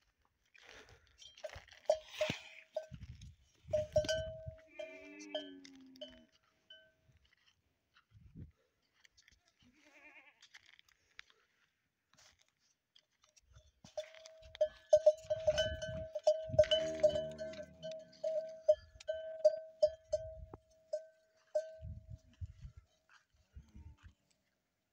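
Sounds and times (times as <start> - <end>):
camel bell clanking: 1.2 - 7.0, 13.9 - 22.6
camel low call: 3.7 - 6.3, 14.0 - 22.0.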